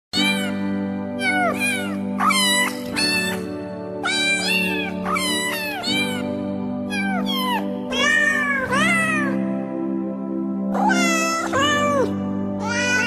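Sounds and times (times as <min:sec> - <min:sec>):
background music: 0:00.1 - 0:13.0
kittens mewing: 0:00.2 - 0:00.6, 0:01.2 - 0:06.3, 0:06.9 - 0:09.4, 0:10.8 - 0:13.0.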